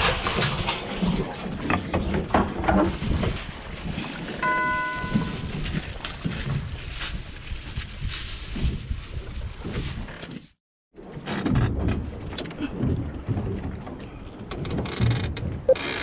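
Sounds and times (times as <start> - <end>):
wind and water rumble: 0.0 - 16.0
short steady beep: 4.4 - 5.5.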